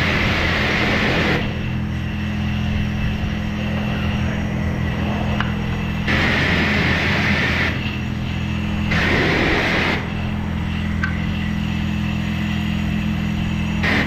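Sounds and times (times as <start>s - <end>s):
hissing water spray: 0.0s - 2.3s, 6.0s - 14.0s
pressure washer motor running: 0.0s - 14.0s.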